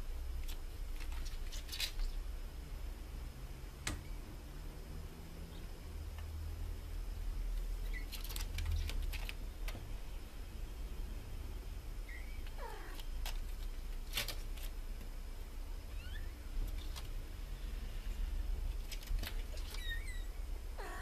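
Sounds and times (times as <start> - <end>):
kittens mewing: 20.8 - 21.0.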